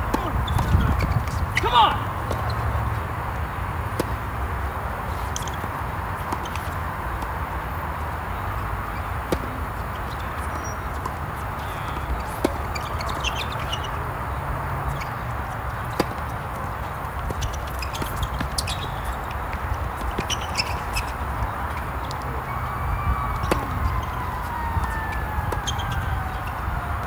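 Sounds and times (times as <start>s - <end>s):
footwork clicks and scuffs: 14.8s - 22.5s.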